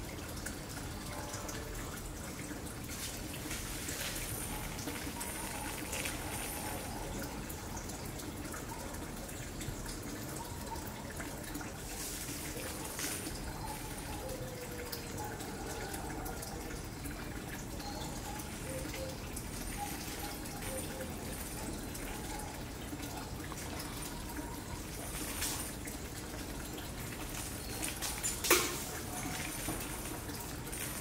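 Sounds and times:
water trickling: 0.0 - 31.0.

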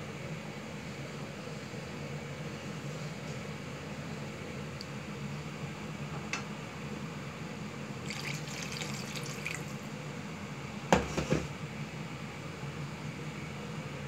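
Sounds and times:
broth sloshing in a metal pan: 8.0 - 9.9.

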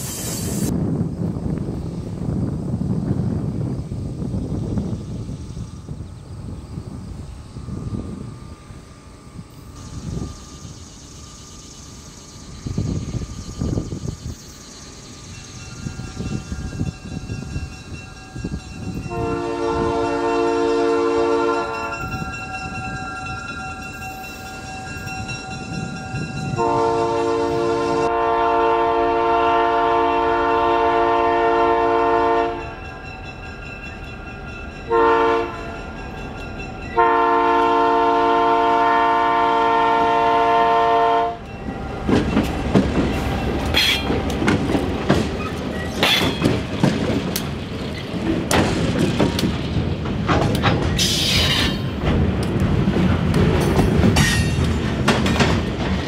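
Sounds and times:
locomotive air horn chord: 19.0 - 22.3, 26.5 - 32.7, 34.9 - 35.8, 37.0 - 42.0
train wheel clatter: 41.4 - 56.0
sharp clanks: 42.1 - 52.5, 53.5 - 56.0.

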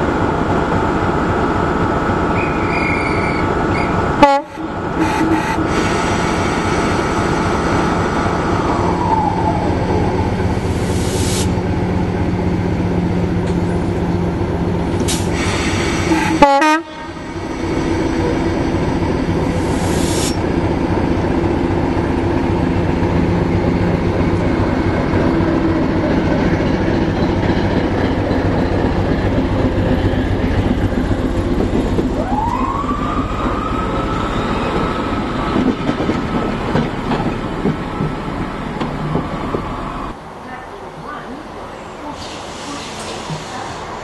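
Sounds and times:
locomotive diesel engine: 0.0 - 44.0
rising squeal: 2.3 - 4.0, 32.1 - 35.8.

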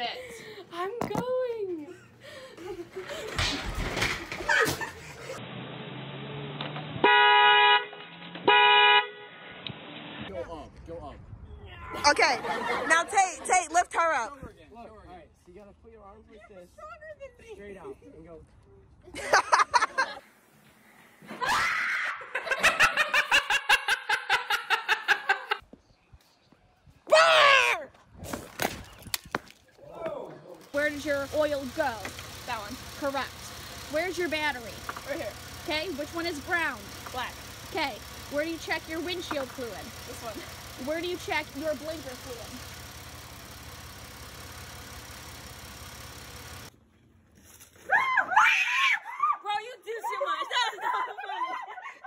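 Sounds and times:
car horn blasts: 7.0 - 9.4.

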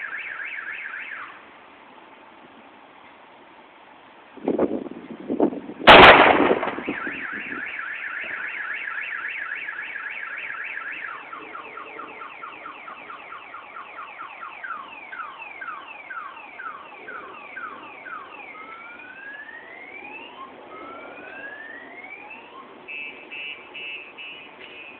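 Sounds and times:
car alarm: 0.0 - 1.3, 6.7 - 18.6, 21.2 - 24.9
loud explosion: 5.9 - 7.3.

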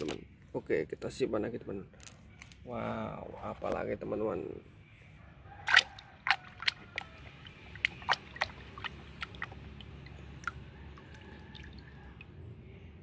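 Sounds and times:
hand splashing in soapy water: 5.7 - 12.0.

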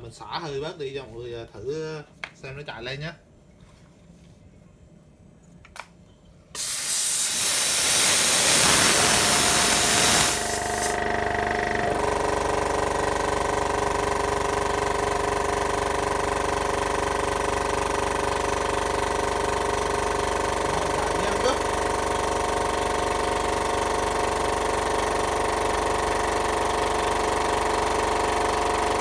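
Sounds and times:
compressed air hissing: 6.6 - 11.0
air compressor running: 6.6 - 29.0.

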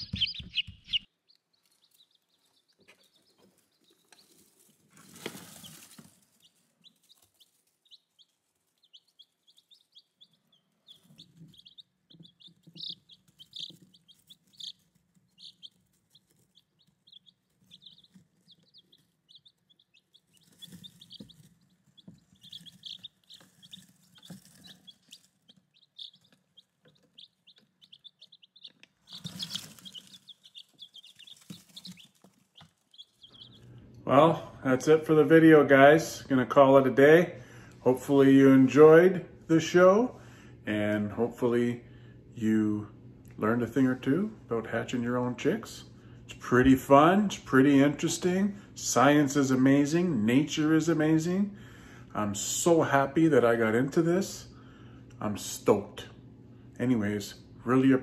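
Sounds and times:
chicks peeping: 0.0 - 58.0
rustling: 1.3 - 33.6.

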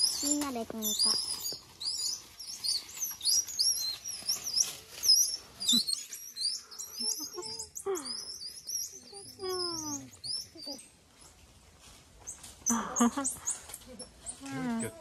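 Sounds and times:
monkeys chirping and squeaking: 0.0 - 15.0
lower falling monkey call: 3.2 - 10.8.

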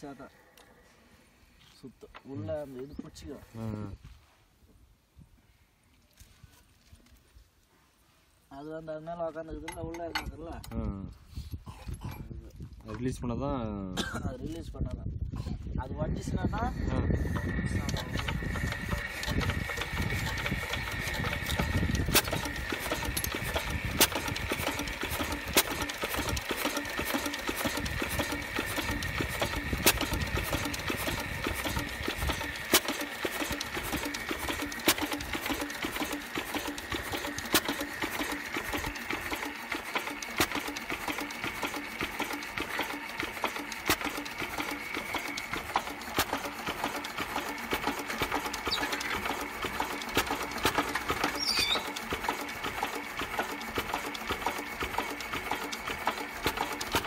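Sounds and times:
diesel engine running: 15.9 - 57.0
sharp engine click: 17.3 - 57.0.

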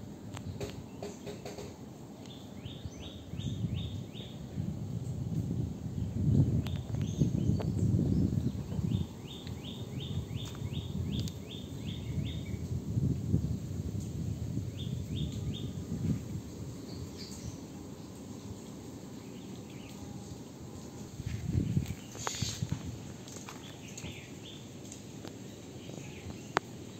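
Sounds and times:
bird chirping: 6.7 - 12.6
dry leaves rustling: 19.2 - 26.5.

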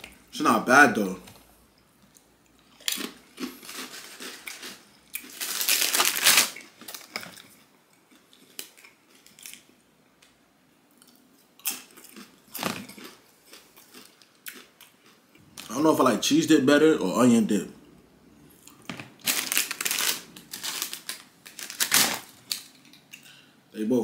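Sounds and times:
food wrapping crinkling and rustling: 1.3 - 9.8, 12.0 - 14.4, 18.6 - 23.2.

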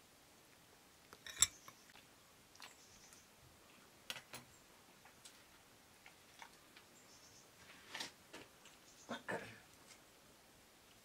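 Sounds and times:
cutlery and dishes clinking: 1.2 - 1.8.

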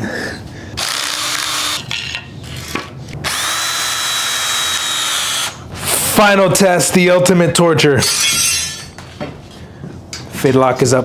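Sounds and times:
cordless drill driving screw: 0.8 - 1.8, 3.2 - 5.6.

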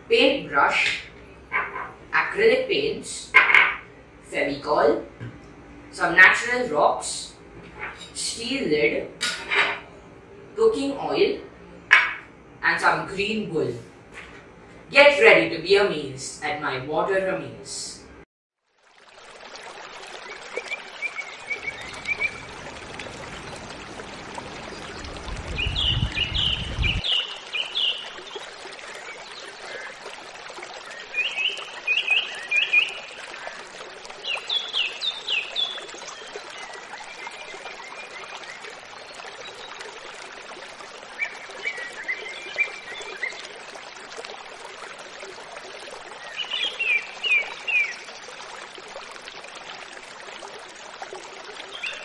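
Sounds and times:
stream running: 0.0 - 52.0
birds chirping: 20.3 - 30.2, 30.8 - 40.0, 46.1 - 48.1.

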